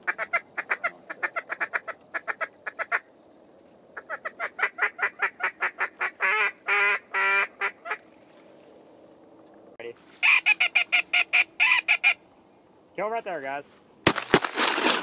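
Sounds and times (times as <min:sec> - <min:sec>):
duck call quacks: 0:00.0 - 0:03.0, 0:04.0 - 0:08.0, 0:10.2 - 0:12.2.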